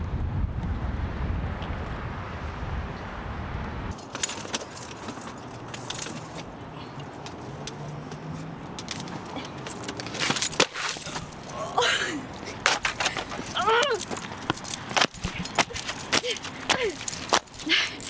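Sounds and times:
wind rumbling on microphone: 0:00.0 - 0:04.0
keys jangling: 0:03.9 - 0:06.6, 0:08.2 - 0:18.0.

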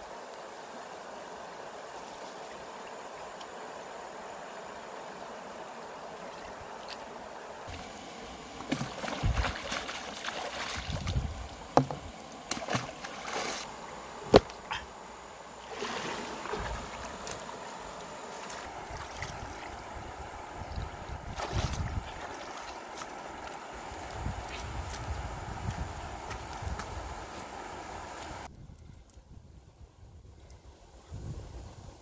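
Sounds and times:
water splashing as person wades: 0:07.7 - 0:11.9, 0:12.5 - 0:13.7, 0:15.6 - 0:17.5, 0:18.3 - 0:19.9, 0:20.7 - 0:23.6.

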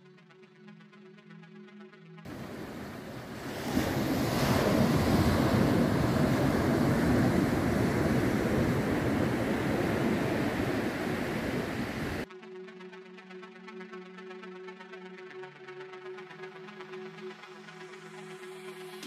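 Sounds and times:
waves breaking on sand beach: 0:02.3 - 0:12.2
wind on microphone: 0:02.3 - 0:12.2.

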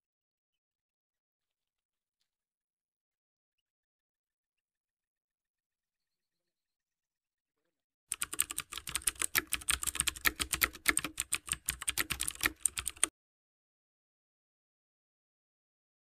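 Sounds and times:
keyboard typing clicks: 0:08.1 - 0:13.1.

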